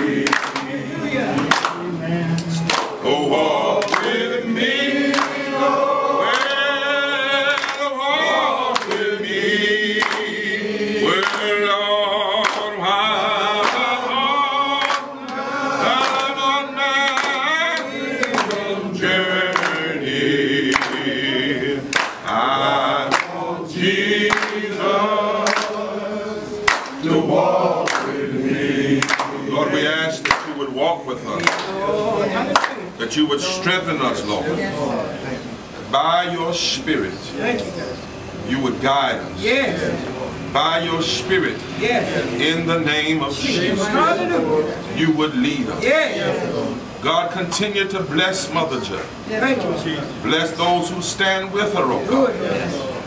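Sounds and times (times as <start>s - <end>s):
group singing a cappella: 0.0s - 37.1s, 37.8s - 53.0s
handclaps: 0.2s - 3.0s, 3.8s - 4.2s, 5.1s - 5.4s, 6.3s - 6.6s, 7.5s - 7.9s, 8.7s - 9.1s, 10.0s - 10.3s, 11.2s - 11.5s, 12.4s - 12.7s, 13.6s - 13.9s, 14.8s - 16.4s, 17.0s - 18.6s, 19.5s - 19.9s, 20.7s - 21.1s, 21.9s - 22.3s, 23.1s - 23.4s, 24.2s - 24.6s, 25.4s - 25.8s, 26.7s - 27.1s, 27.8s - 28.2s, 29.0s - 29.4s, 30.2s - 30.6s, 31.4s - 31.8s, 32.5s - 32.8s.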